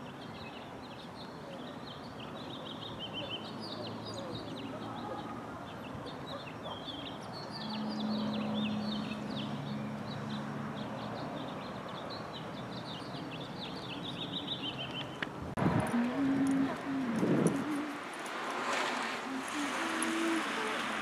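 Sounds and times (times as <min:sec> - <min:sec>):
small birds chirping: 0:00.0 - 0:15.4
outdoor background noise: 0:00.0 - 0:21.0.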